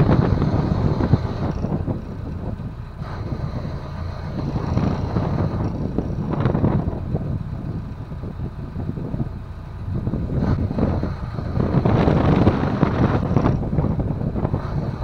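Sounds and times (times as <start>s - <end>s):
boat engine running: 0.0s - 15.0s
wind buffeting microphone: 0.0s - 15.0s.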